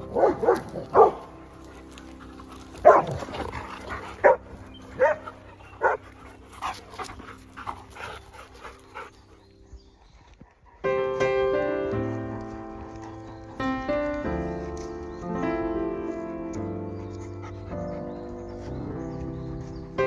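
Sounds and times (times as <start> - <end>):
dogs barking: 0.0 - 9.5, 16.2 - 20.0.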